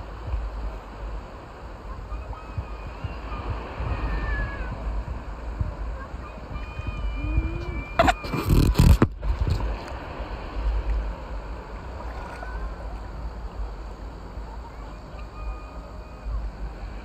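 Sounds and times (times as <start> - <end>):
seawater sloshing: 0.0 - 17.0
wind on microphone: 0.0 - 17.0.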